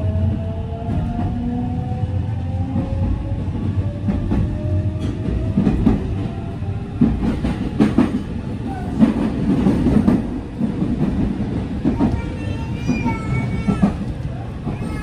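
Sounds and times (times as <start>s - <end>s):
train rumbling inside car: 0.0s - 15.0s
wheels clacking over track joints: 7.0s - 15.0s.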